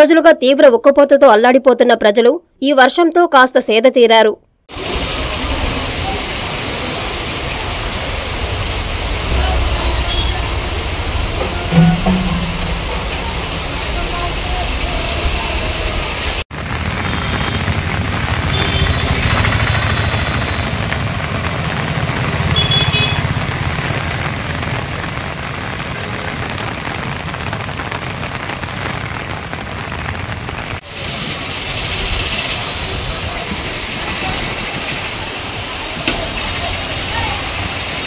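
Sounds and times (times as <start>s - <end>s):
heavy rain hissing: 4.7s - 38.0s
motorbikes and traffic passing: 13.8s - 26.5s.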